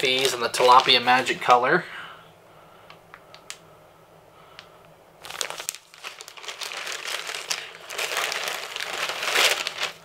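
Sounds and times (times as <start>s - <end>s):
plastic packaging crinkling: 0.0s - 1.4s, 5.2s - 10.0s.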